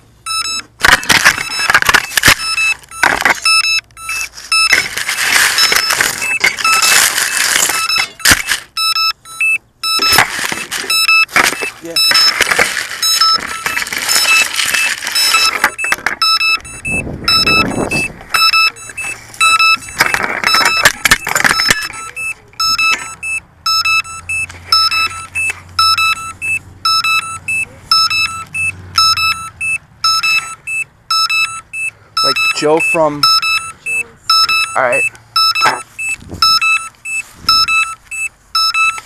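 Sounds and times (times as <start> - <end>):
handling noise: 0.0 - 39.0
electronic alarm beeps: 0.2 - 39.0
grass rustling on microphone: 37.0 - 37.6.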